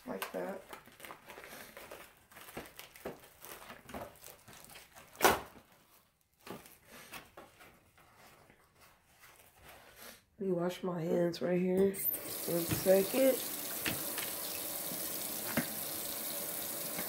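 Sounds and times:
plastic wrap crinkling and tearing: 0:00.0 - 0:07.1.

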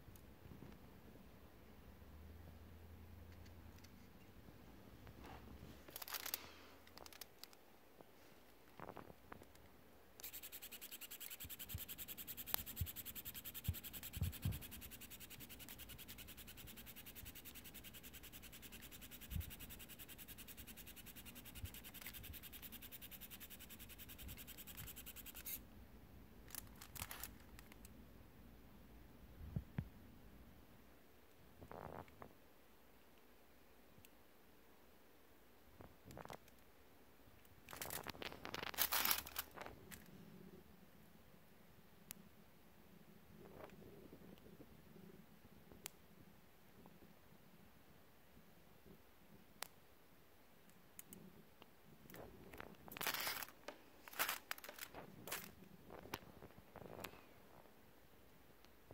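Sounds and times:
foil rustling and clicks: 0:26.5 - 0:27.7, 0:37.7 - 0:40.0, 0:52.9 - 0:55.5.

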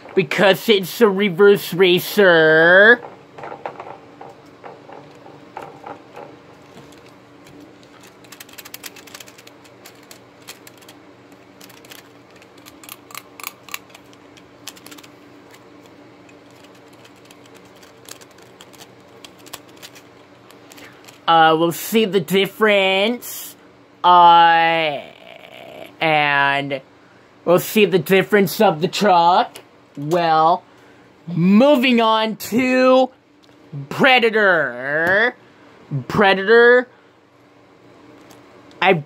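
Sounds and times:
faint steady hum: 0:00.0 - 0:39.0
toy truck clicking and rattling: 0:07.9 - 0:11.0, 0:11.6 - 0:15.1, 0:16.4 - 0:21.2.

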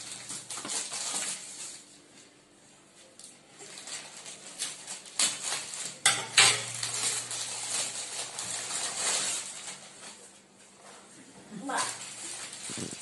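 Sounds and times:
plastic wrapping crinkling: 0:00.0 - 0:13.0
scissors cutting plastic: 0:03.6 - 0:10.2.

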